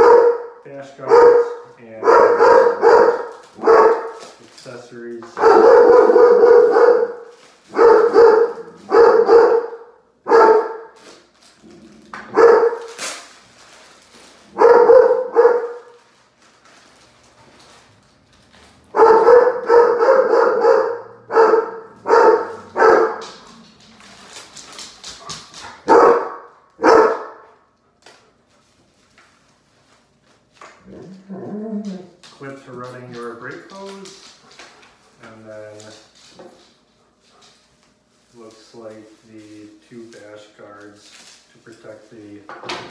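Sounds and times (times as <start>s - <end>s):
dog barking: 0.0s - 4.2s, 5.4s - 11.0s, 12.3s - 12.9s, 14.5s - 15.9s, 18.9s - 23.4s, 25.8s - 27.6s.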